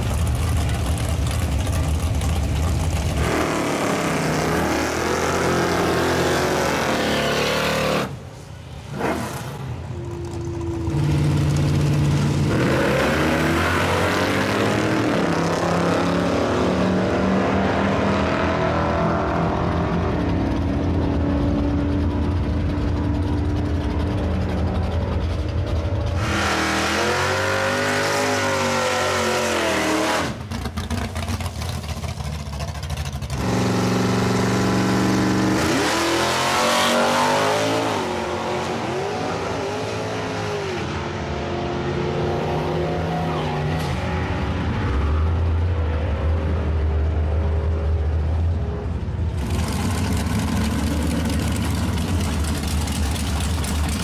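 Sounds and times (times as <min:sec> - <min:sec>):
drag car engine revving and accelerating: 0:00.0 - 0:08.2, 0:10.9 - 0:48.2, 0:49.3 - 0:54.0
car engine revving in burnout: 0:03.1 - 0:08.2, 0:10.9 - 0:19.8, 0:26.1 - 0:31.6, 0:33.3 - 0:40.9.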